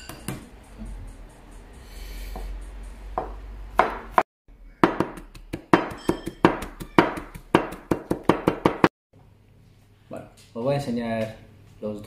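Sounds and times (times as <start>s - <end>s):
knife chopping on cutting board: 4.8s - 8.9s.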